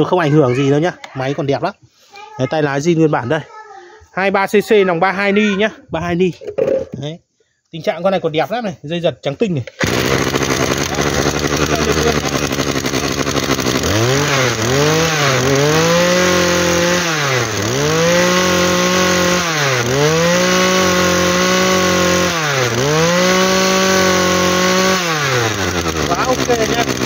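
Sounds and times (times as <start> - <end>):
brush cutter engine revving: 9.7 - 27.0.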